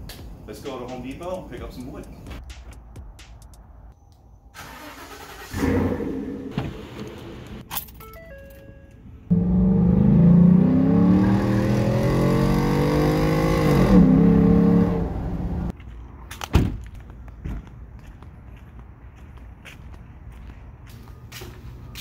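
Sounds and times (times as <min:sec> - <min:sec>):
truck engine revving: 0:09.3 - 0:15.7.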